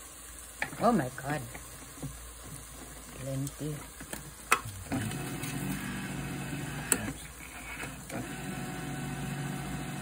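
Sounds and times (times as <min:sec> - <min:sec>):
electric can opener humming: 0:04.0 - 0:10.0
can opener click: 0:06.9 - 0:07.2.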